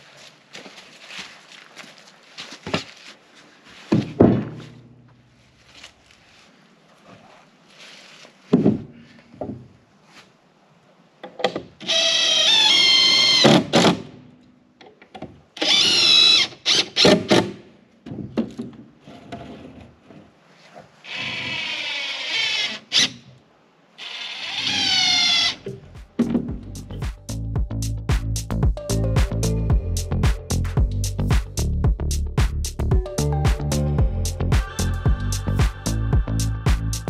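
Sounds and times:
cordless drill driving screws: 11.8 - 14.0, 15.6 - 17.5, 21.1 - 23.2, 24.0 - 25.6
boards knocking: 26.2 - 26.7.

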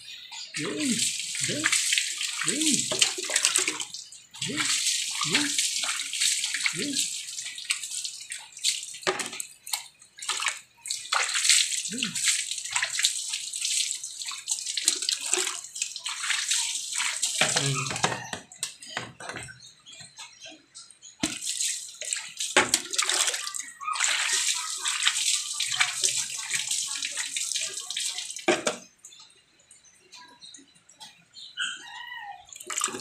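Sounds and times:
water splashing over engine: 0.5 - 18.1.

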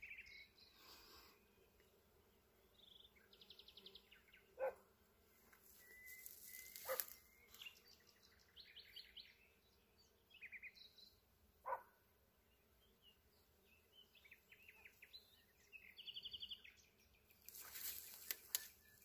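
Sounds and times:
faint birdsong trills: 0.0 - 19.0
dog barking: 4.6 - 4.8, 6.8 - 7.1, 11.6 - 11.9.

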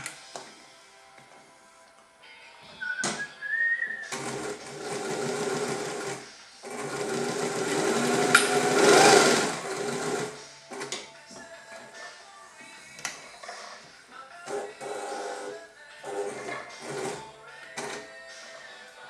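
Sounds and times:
sewing machine stitching leather: 4.1 - 11.0, 14.4 - 18.1.

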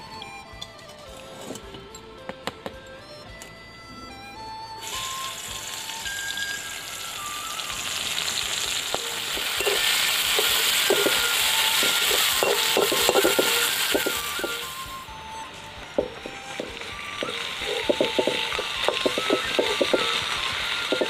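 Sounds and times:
onions sizzling in hot oil: 4.8 - 15.1, 15.8 - 21.0
metal spatula scraping a pan: 9.6 - 14.8.

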